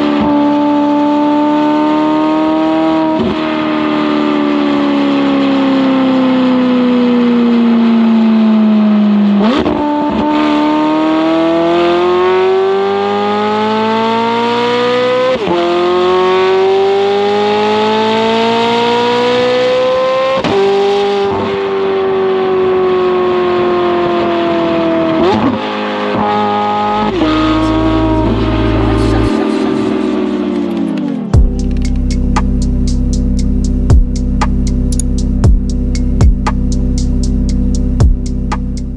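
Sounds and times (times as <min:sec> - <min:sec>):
sports car engine accelerating: 0:00.0 - 0:38.9
engine blips: 0:26.2 - 0:38.9.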